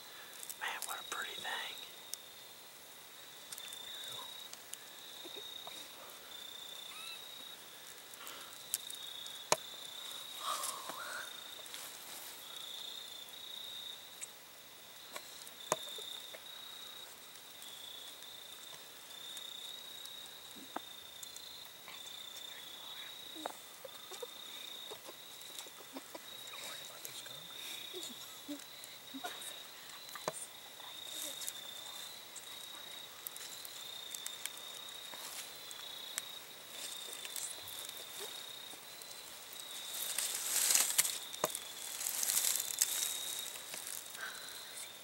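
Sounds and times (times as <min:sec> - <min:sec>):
crickets chirring: 0:00.0 - 0:45.0
faint clicks and rustles: 0:17.1 - 0:45.0.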